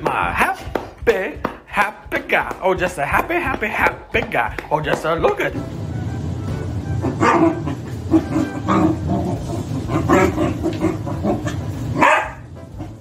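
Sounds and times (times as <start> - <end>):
dog barking: 12.0 - 12.5.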